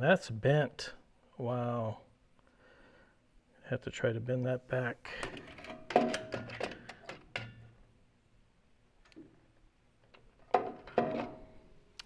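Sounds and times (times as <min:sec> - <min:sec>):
metal clanks and knocks: 0:05.2 - 0:07.7, 0:10.4 - 0:11.7.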